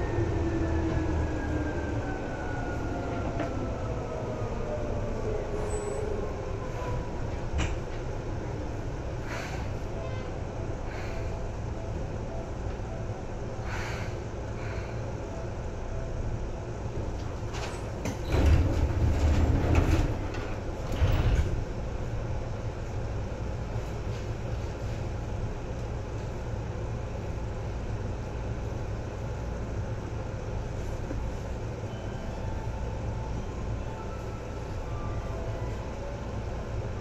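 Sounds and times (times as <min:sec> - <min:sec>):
train hum and rumble: 0:00.0 - 0:37.0
train clattering: 0:16.9 - 0:21.9.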